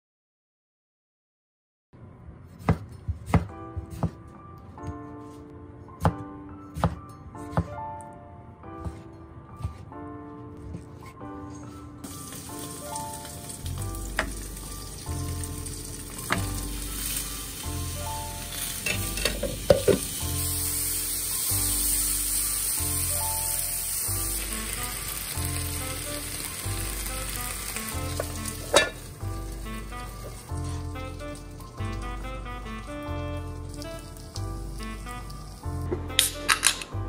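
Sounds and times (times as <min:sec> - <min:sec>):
soft background music: 0:02.4 - 0:37.0
food sizzling in hot oil: 0:12.0 - 0:36.2
utensils clinking: 0:18.6 - 0:20.1, 0:28.2 - 0:29.1, 0:36.1 - 0:36.9.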